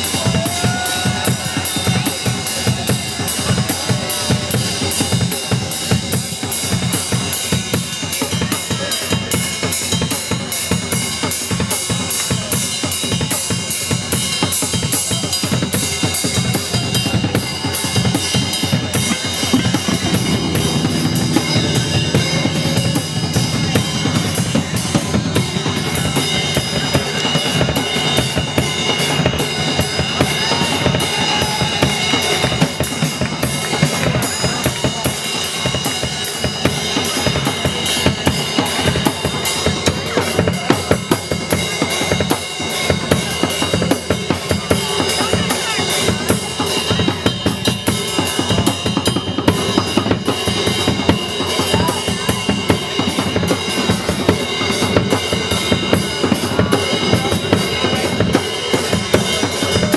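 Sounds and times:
loud band music: 0.0s - 9.6s, 16.6s - 41.8s
fast drum kit playing: 0.0s - 59.9s
high ringing tones: 19.0s - 28.6s.

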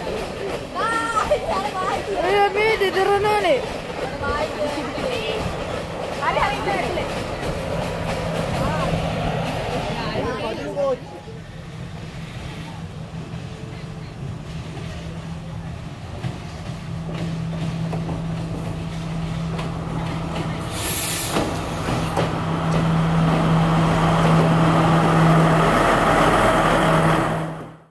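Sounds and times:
diesel train engine droning: 0.0s - 27.9s
air brake hiss: 20.7s - 21.6s.

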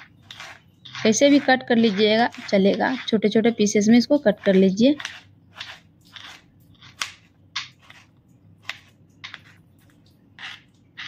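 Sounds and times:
knife cutting on plastic board: 0.2s - 3.2s, 4.4s - 9.6s.

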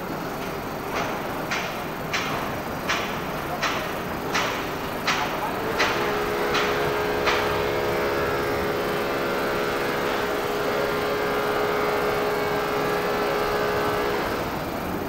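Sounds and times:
street traffic: 0.0s - 15.0s
vehicle engine hum: 5.5s - 15.0s.

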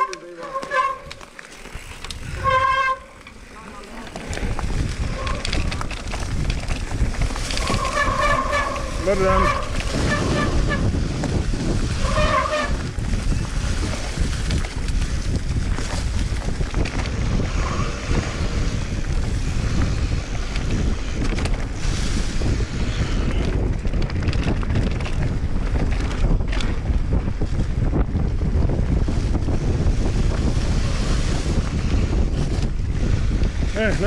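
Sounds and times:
tyres rumbling: 0.0s - 21.8s
bike clicks and rattles: 0.0s - 34.0s
wind buffeting microphone: 0.0s - 34.0s.

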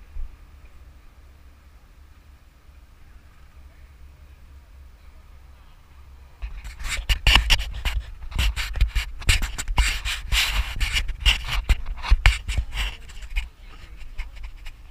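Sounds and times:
rustling and crackling handling noise: 6.4s - 14.9s.

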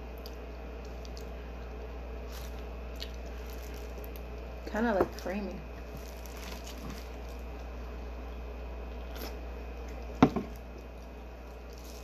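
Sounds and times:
soft wet eating sounds: 0.0s - 4.5s
low room hum: 0.0s - 12.0s.

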